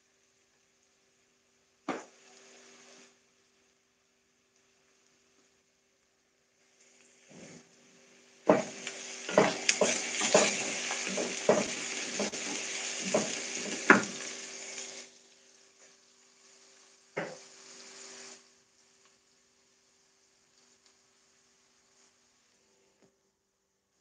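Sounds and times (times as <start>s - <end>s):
onions sizzling in oil: 0.0s - 22.9s
wooden spoon knocking pan: 8.5s - 14.2s.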